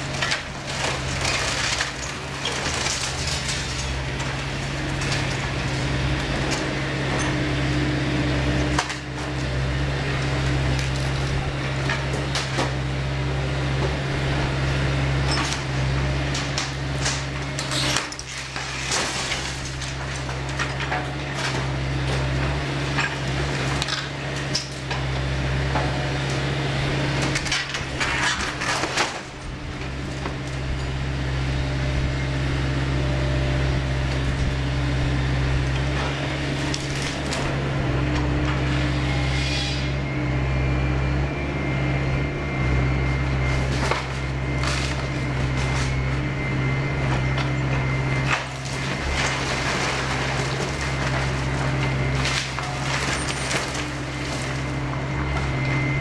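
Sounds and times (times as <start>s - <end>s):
timber cracking and splintering: 0.0s - 7.3s, 8.4s - 13.1s, 15.3s - 26.5s, 27.2s - 30.7s, 35.5s - 37.6s, 43.5s - 56.0s
falling debris crashing: 0.0s - 31.1s, 34.1s - 38.8s, 43.3s - 56.0s
diesel engine running: 0.0s - 56.0s.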